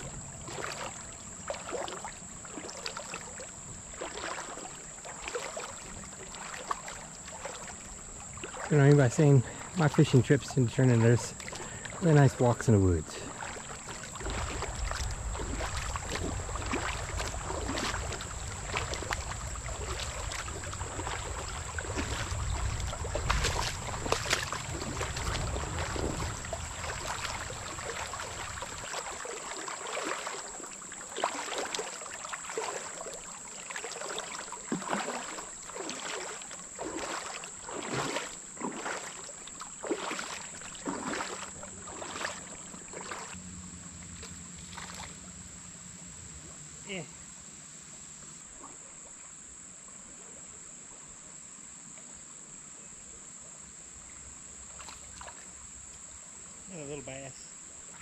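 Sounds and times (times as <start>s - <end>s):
footsteps wading through water: 0.0s - 47.1s, 47.8s - 49.3s, 54.5s - 58.0s
low wind rumble on microphone: 14.0s - 28.9s.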